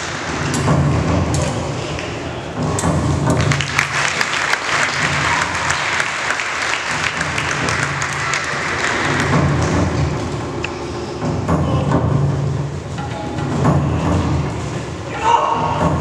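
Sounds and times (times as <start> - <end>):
audience clapping: 0.0 - 0.7, 3.3 - 10.4
music with low pulsing beat: 0.0 - 16.0.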